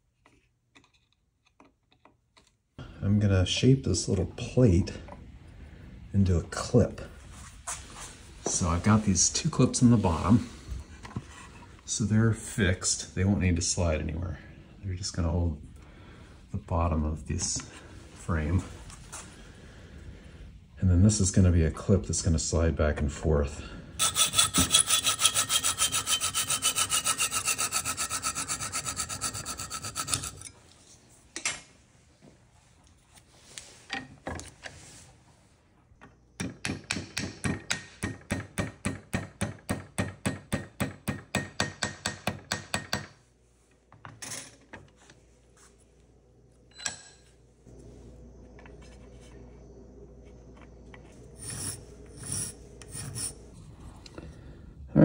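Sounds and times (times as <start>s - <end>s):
file rasping on metal: 24.0s - 30.5s, 51.4s - 53.4s
hacksaw cutting metal: 24.0s - 30.5s.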